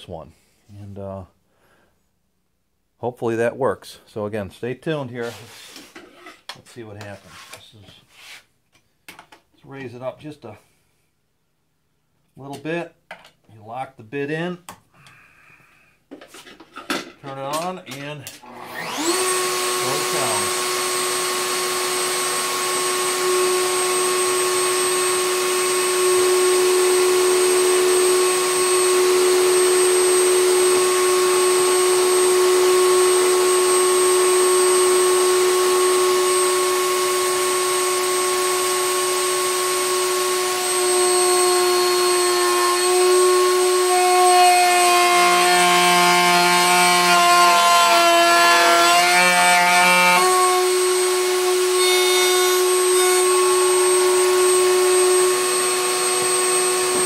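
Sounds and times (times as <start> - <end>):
router whining cutting wood: 18.4 - 57.0.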